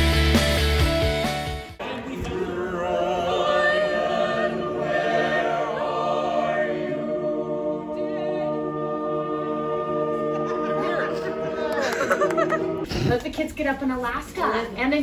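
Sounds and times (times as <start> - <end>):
choir singing a cappella: 1.8 - 12.9.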